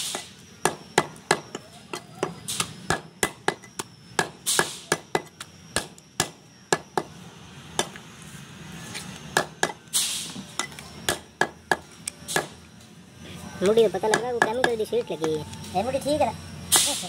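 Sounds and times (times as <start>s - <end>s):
cleaver chopping meat and bone: 0.1s - 1.6s, 2.2s - 7.1s, 14.0s - 14.8s.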